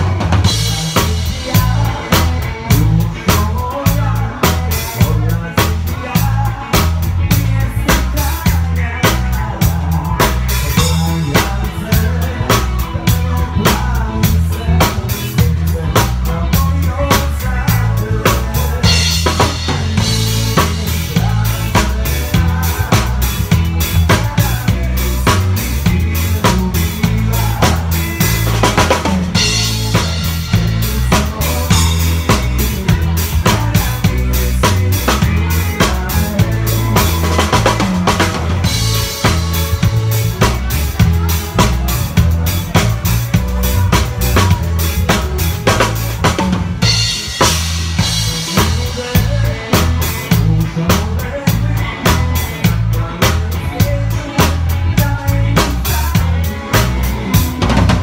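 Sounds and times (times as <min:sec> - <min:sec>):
drum kit groove: 0:00.0 - 0:58.0
low stepping bass notes: 0:00.0 - 0:58.0.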